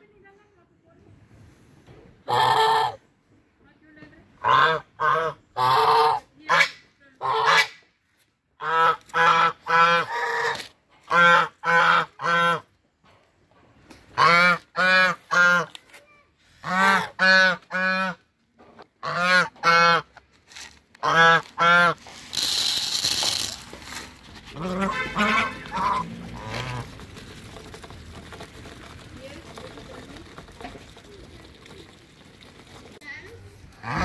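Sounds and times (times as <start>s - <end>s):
geese honking: 21.0s - 22.0s, 24.5s - 27.7s, 33.8s - 34.0s
grain pouring into a bowl: 21.9s - 33.1s.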